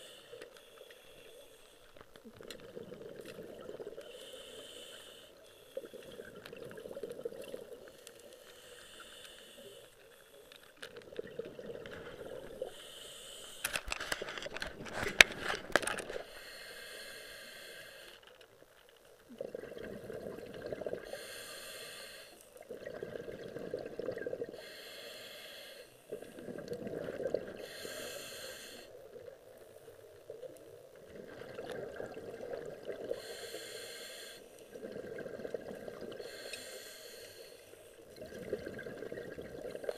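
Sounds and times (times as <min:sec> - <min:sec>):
regulator inhale hiss: 0:00.0 - 0:02.0, 0:04.0 - 0:06.1, 0:07.8 - 0:10.8, 0:12.4 - 0:13.8, 0:16.2 - 0:18.3, 0:21.0 - 0:22.6, 0:24.5 - 0:26.4, 0:27.6 - 0:29.0, 0:33.0 - 0:34.8, 0:36.1 - 0:38.1
exhaled bubbles rumbling: 0:02.2 - 0:04.1, 0:05.8 - 0:08.0, 0:10.9 - 0:12.7, 0:19.3 - 0:21.0, 0:22.6 - 0:24.6, 0:26.1 - 0:27.6, 0:29.0 - 0:33.2, 0:34.7 - 0:36.2, 0:38.1 - 0:39.9.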